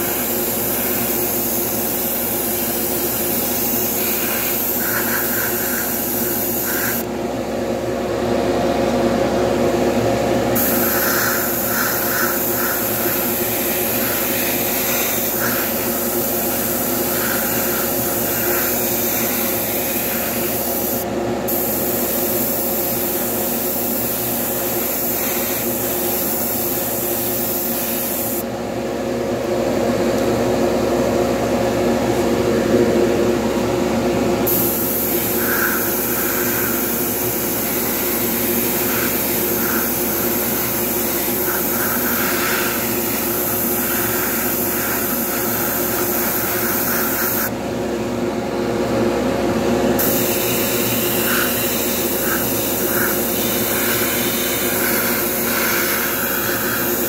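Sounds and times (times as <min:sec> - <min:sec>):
airbrush hissing: 0:00.0 - 0:07.1, 0:10.6 - 0:28.4, 0:34.5 - 0:47.5, 0:50.0 - 0:57.0
steady motor hum: 0:00.0 - 0:57.0.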